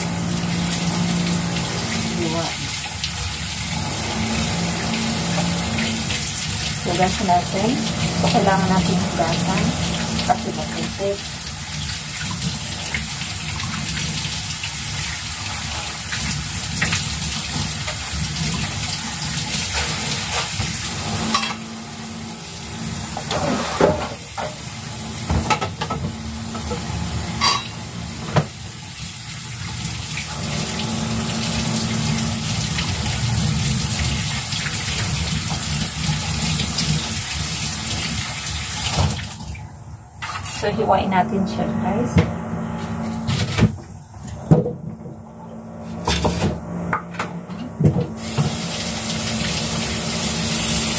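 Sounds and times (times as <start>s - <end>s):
tap running into a sink: 23.1s - 28.6s, 46.0s - 50.9s.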